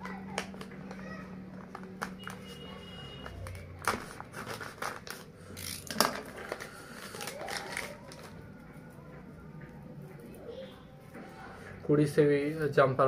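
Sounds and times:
plastic packet crinkling: 0:03.4 - 0:08.4.

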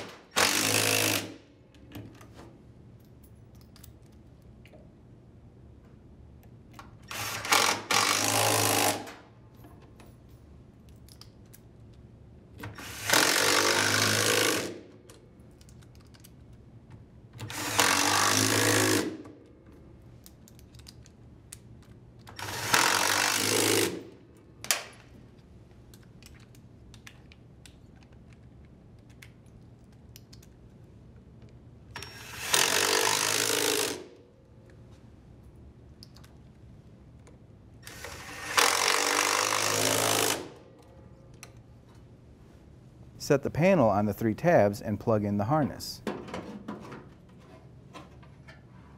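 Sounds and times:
cordless impact driver hammering: 0:00.0 - 0:01.4, 0:38.0 - 0:40.6.

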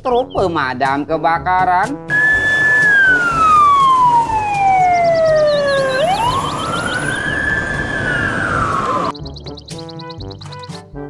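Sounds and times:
road noise hiss: 0:02.1 - 0:04.5
fire engine siren wailing: 0:02.1 - 0:09.1.

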